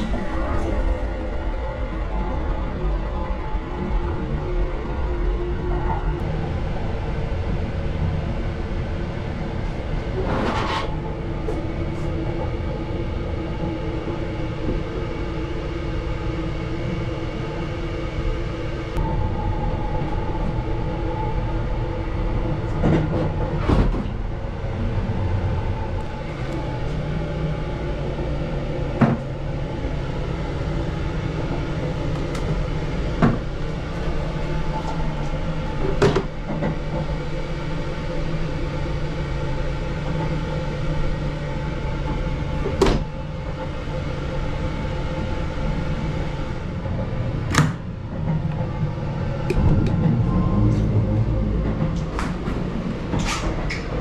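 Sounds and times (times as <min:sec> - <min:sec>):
train rumble with low hum: 0:00.0 - 0:54.0.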